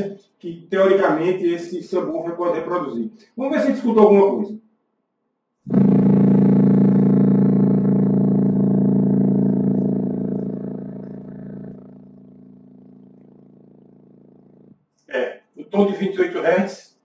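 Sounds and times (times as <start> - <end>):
subwoofer low test tone drone: 5.7 - 14.8.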